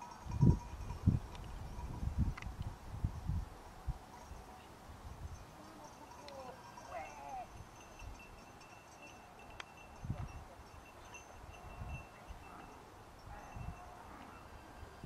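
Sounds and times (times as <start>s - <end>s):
sheep bells tinkling: 0.0s - 2.2s, 3.1s - 15.0s
wind buffeting microphone: 0.0s - 5.6s, 9.8s - 12.6s, 13.2s - 15.0s.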